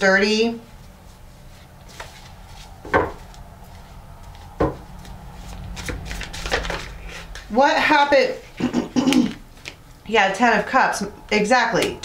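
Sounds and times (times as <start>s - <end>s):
faint hum: 0.0s - 12.0s
dull knocks: 4.6s - 4.9s.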